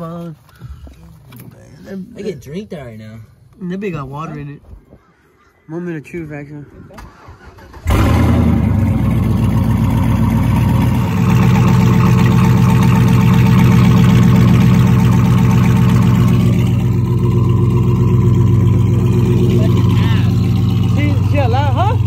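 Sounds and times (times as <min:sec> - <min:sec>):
truck engine starting and idling: 0:07.0 - 0:22.0.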